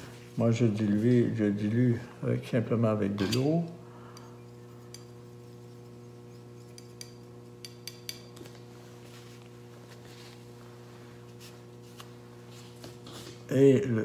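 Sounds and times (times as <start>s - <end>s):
steady low hum: 0.0s - 14.0s
brush rustling in paper towel: 8.7s - 13.4s.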